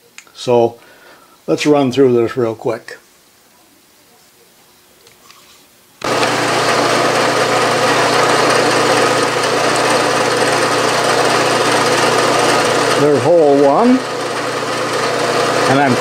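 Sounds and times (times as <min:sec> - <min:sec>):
drill spotting a hole: 0:06.0 - 0:16.0
milling machine motor humming: 0:06.0 - 0:16.0.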